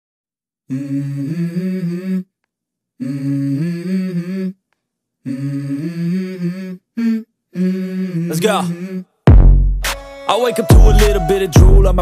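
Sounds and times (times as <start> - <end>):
low voice humming melody: 0.7 - 2.3, 3.0 - 4.6, 5.2 - 9.1.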